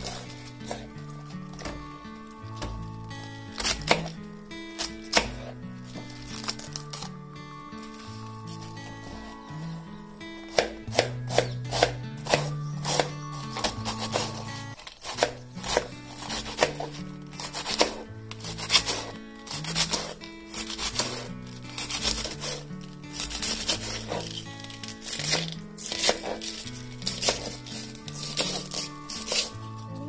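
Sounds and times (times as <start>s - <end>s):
knife shredding cabbage on board: 0.0s - 1.7s, 10.5s - 29.6s
background music: 0.0s - 30.0s.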